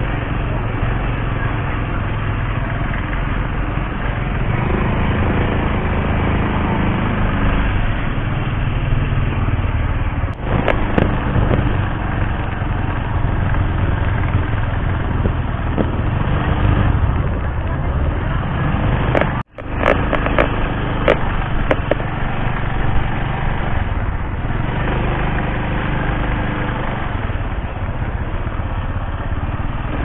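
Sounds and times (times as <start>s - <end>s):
motorcycle engine running: 0.0s - 30.0s
wind and road noise: 0.0s - 30.0s
sharp clicks: 19.1s - 22.1s.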